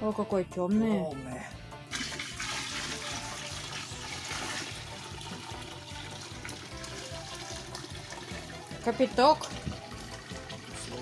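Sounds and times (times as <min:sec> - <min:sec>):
splashing and foaming liquid: 0:01.9 - 0:08.8
liquid pouring into bucket: 0:01.9 - 0:11.0.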